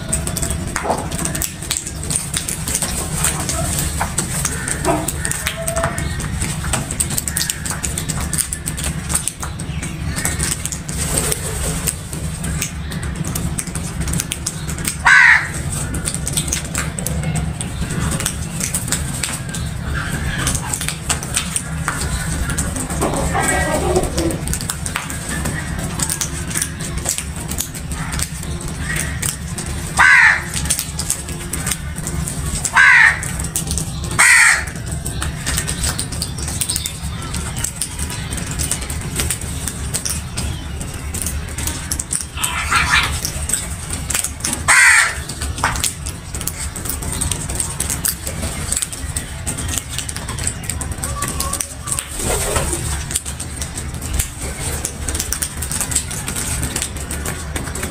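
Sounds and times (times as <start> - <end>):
beaks pecking on concrete: 0.0 - 57.9
crow cawing: 4.4 - 6.2, 15.0 - 15.6, 28.8 - 30.6, 32.7 - 33.3, 34.2 - 34.8, 44.7 - 45.3.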